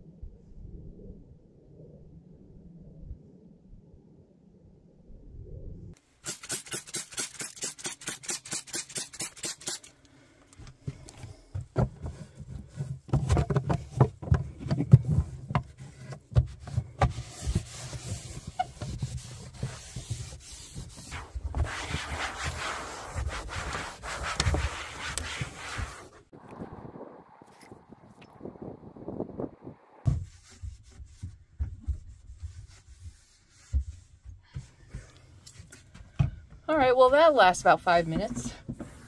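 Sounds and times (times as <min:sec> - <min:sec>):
rubbing and wiping: 0:11.9 - 0:26.3, 0:30.1 - 0:36.1, 0:38.6 - 0:39.0
hand scrubbing surfaces: 0:15.7 - 0:26.3, 0:30.2 - 0:36.0.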